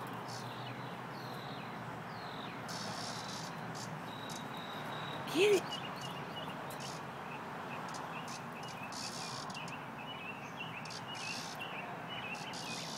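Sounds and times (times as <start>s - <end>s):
small birds chirping: 0.0s - 12.9s
cicada buzzing distress calls: 2.7s - 6.2s, 7.9s - 9.7s, 10.8s - 11.6s, 12.3s - 12.9s.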